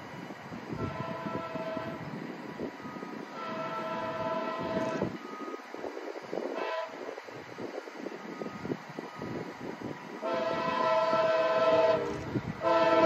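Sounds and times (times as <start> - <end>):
train horn blasts: 0.7 - 2.1, 3.3 - 5.2, 6.5 - 7.1, 10.2 - 13.0.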